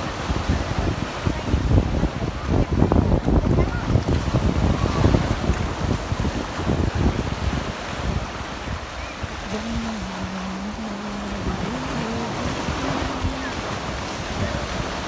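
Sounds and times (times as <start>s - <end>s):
sea surf washing: 0.0s - 15.0s
wind buffeting microphone: 0.0s - 15.0s
person singing long notes: 9.4s - 13.9s.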